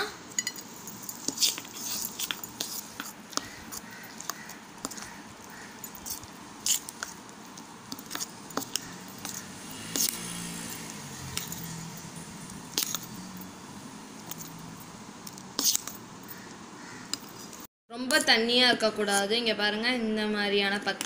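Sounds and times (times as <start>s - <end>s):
spoon clinking on metal bowl: 0.4s - 0.7s
spoon stirring thick batter: 0.8s - 17.6s.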